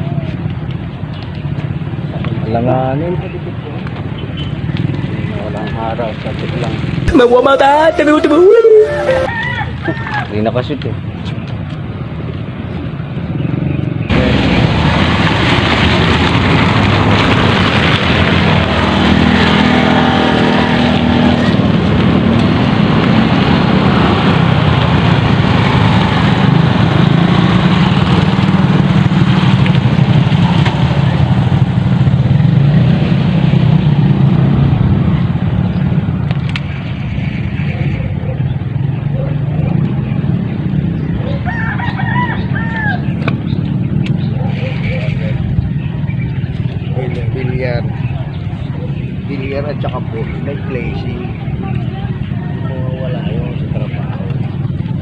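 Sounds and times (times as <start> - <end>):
motor engine running loudly: 12.8 - 55.0.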